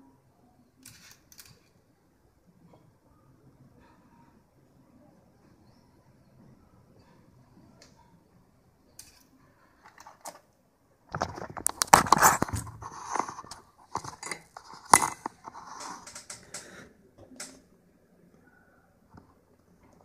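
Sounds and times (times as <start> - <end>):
packaging crinkling and clicking: 11.2 - 13.3.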